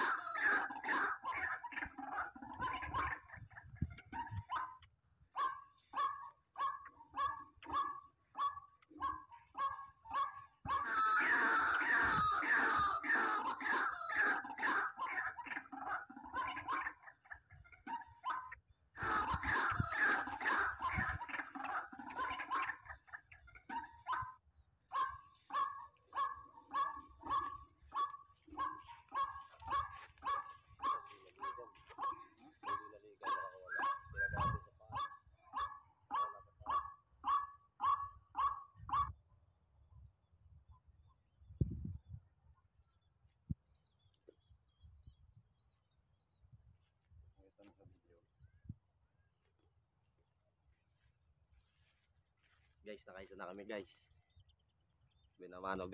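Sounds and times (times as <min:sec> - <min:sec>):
bird yelping calls: 0:00.0 - 0:39.2.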